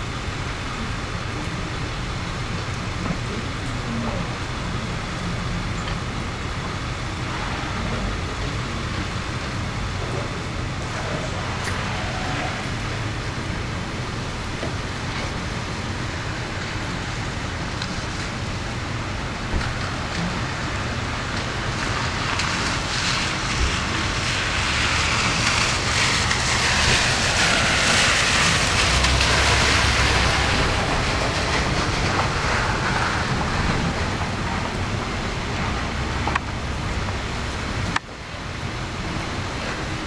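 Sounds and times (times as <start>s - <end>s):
car tyres hissing through water: 0.0s - 40.0s
wet street noise: 0.0s - 40.0s.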